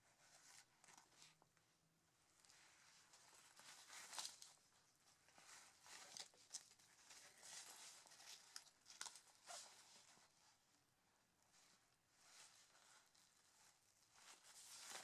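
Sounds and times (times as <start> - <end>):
fabric rustling and scuffing: 11.5 - 15.0.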